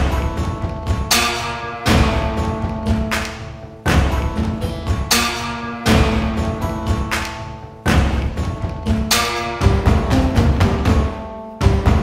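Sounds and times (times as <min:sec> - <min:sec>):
heavy drum hits: 0:03.9 - 0:05.1, 0:07.9 - 0:08.9.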